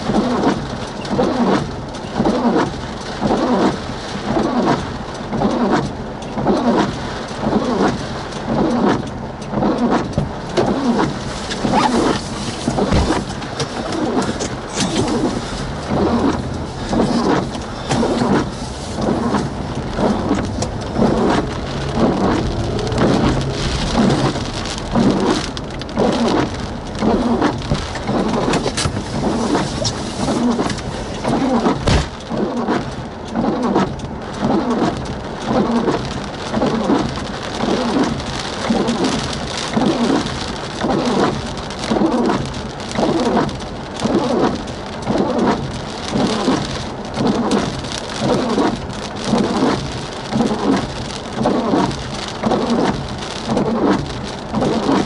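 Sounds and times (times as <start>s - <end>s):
rain falling on vehicle: 0.0s - 55.0s
sharp thump: 12.9s - 13.3s, 31.8s - 32.1s.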